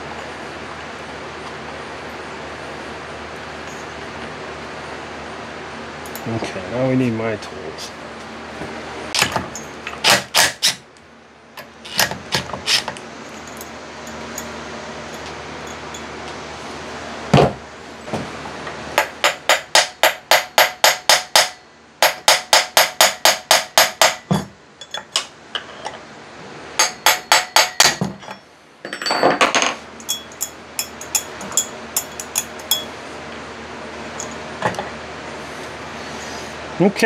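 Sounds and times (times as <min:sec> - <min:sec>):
hammer tapping on metal: 0:19.0 - 0:24.5, 0:26.8 - 0:28.0.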